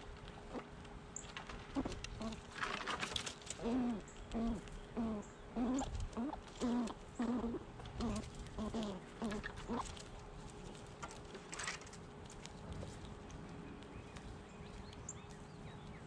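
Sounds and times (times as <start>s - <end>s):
low animal calls: 1.6s - 10.2s.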